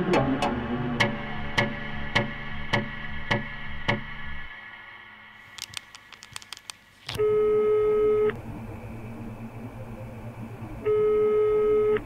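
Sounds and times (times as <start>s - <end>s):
small clicks: 5.4s - 7.2s
electronic telephone tone: 7.2s - 8.4s, 10.8s - 12.0s.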